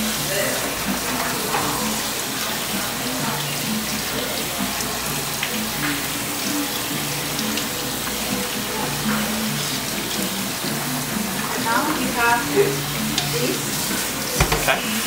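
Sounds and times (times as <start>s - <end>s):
beans rinsed by hand: 0.0s - 15.0s
faucet running into metal bowl: 0.0s - 15.0s.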